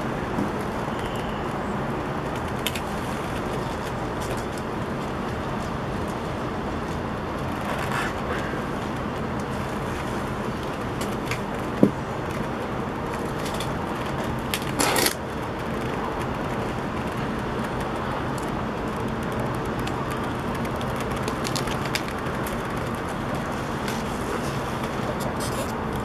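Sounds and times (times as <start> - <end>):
city traffic hum: 0.0 - 26.0.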